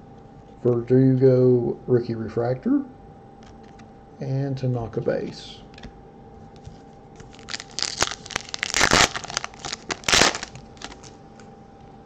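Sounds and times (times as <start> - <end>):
foil wrapper crinkling and tearing: 7.2 - 11.2.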